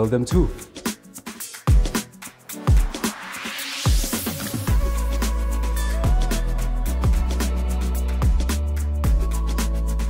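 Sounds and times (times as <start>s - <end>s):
rising hiss sweep: 3.0s - 5.3s
steady deep bass: 4.7s - 10.0s.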